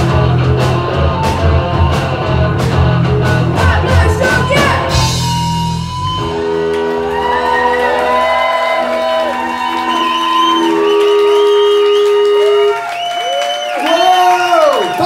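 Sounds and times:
rock band playing: 0.0 - 15.0
boy singing: 3.6 - 5.0.

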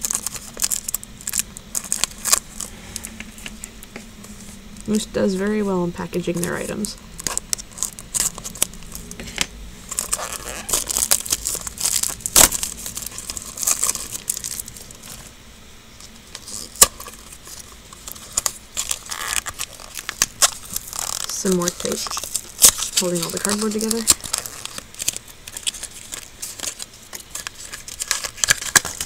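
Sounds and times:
packaging clicks: 0.0 - 2.7, 9.9 - 15.2, 16.4 - 29.0
packaging crinkling and tearing: 0.0 - 5.0, 6.2 - 15.4, 16.0 - 29.0.

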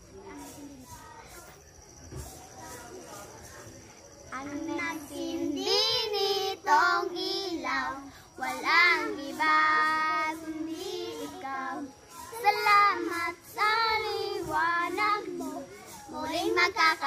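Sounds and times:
children singing a carol: 4.3 - 17.0.

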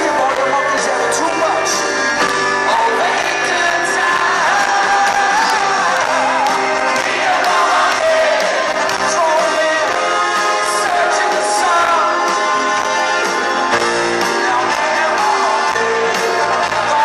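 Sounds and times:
live pop-rock band: 0.0 - 17.0
man singing: 2.6 - 13.2, 13.8 - 17.0.

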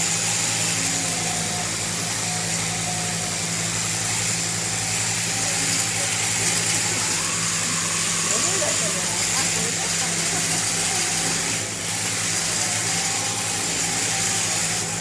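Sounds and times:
electric shearing machine humming: 0.0 - 15.0.

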